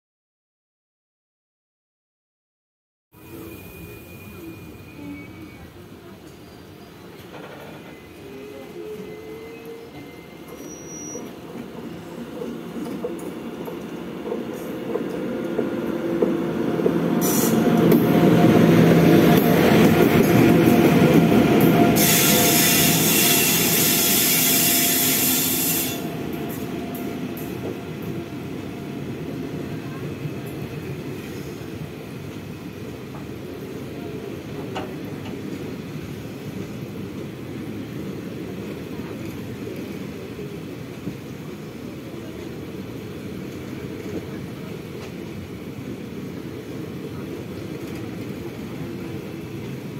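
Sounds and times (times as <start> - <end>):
rumble of wheels on rail: 3.2 - 49.9
train passing close: 3.2 - 49.9
hiss burst: 17.2 - 17.7.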